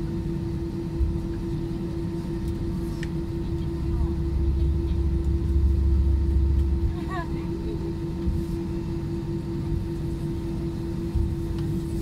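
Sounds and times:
aircraft cabin engine hum: 0.0 - 12.0
low rumble: 2.7 - 12.0.

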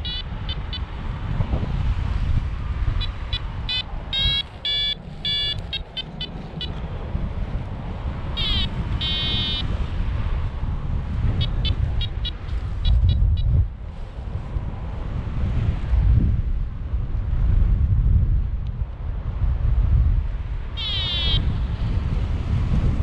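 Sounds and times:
variometer beeping: 0.0 - 1.0, 3.0 - 6.8, 8.4 - 9.7, 11.4 - 13.7, 20.8 - 21.6
wind rumble on microphone: 0.0 - 23.0.

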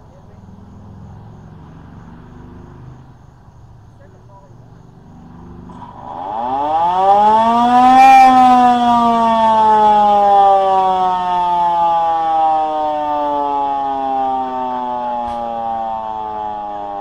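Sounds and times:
warning siren winding up and down: 5.0 - 17.0.

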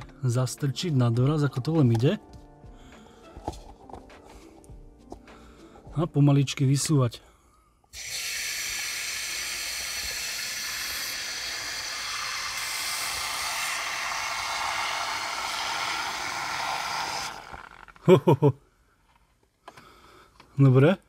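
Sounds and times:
man's voice: 0.0 - 2.2
aerosol can spraying: 8.0 - 17.7.

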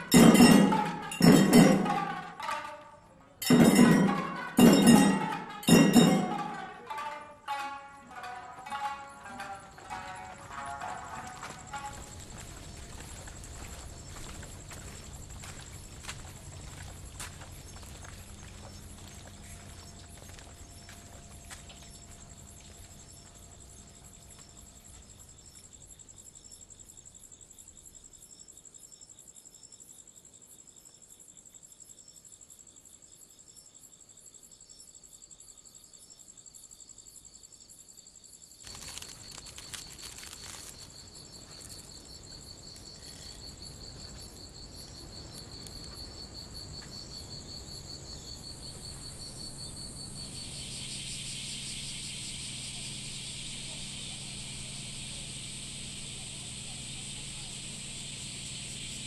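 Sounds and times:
crickets chirping: 0.0 - 59.0
broad hiss: 50.4 - 59.0.

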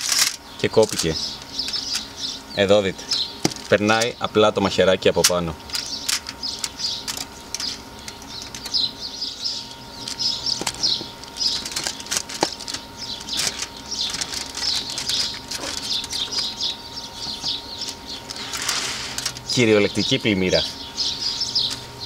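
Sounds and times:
foil rustling: 0.0 - 2.2, 3.0 - 4.1, 10.0 - 17.6, 18.3 - 19.7
birds chirping: 0.0 - 22.0.

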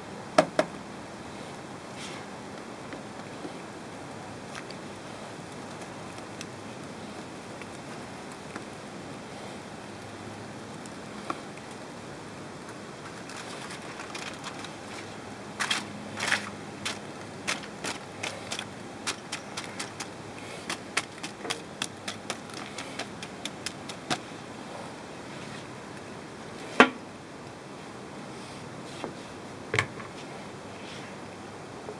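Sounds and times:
steady hiss: 0.0 - 31.9
utensils clicking on grill grates: 12.7 - 24.3.

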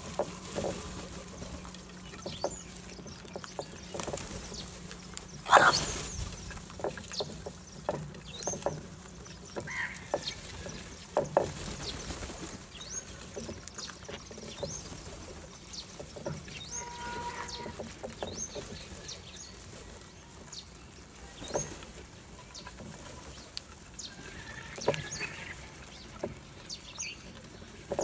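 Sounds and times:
beaks pecking at dishes: 0.0 - 28.0.

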